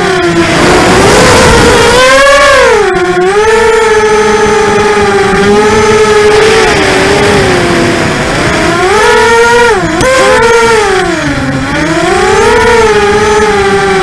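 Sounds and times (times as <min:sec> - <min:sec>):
quadcopter motors whining: 0:00.0 - 0:14.0.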